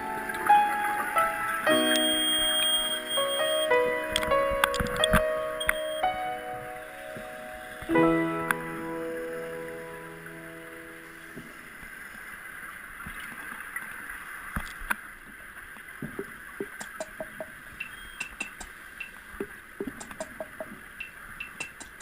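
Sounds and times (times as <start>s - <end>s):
sharp underwater clicks: 16.0s - 22.0s.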